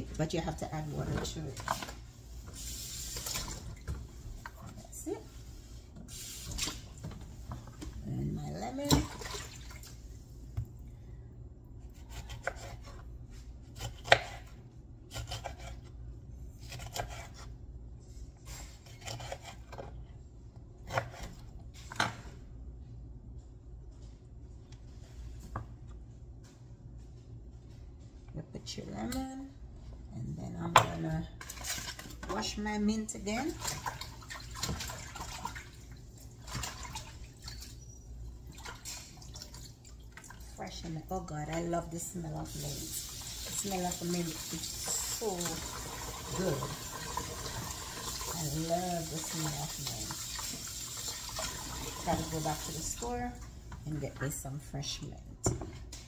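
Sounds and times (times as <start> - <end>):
water splashing in sink: 0.8 - 5.1, 6.0 - 10.2, 33.2 - 40.7, 42.4 - 53.5.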